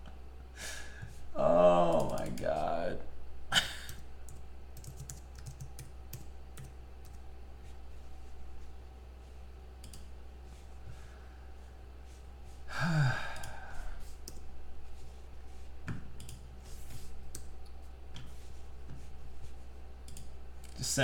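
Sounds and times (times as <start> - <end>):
low steady hum: 0.0 - 21.0
man sighing: 0.6 - 2.9, 12.7 - 14.1.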